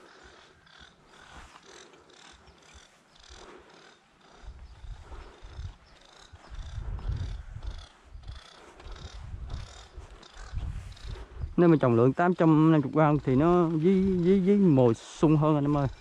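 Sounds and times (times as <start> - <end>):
footsteps on dry dirt: 0.0 - 16.0
wind buffeting microphone: 4.2 - 16.0.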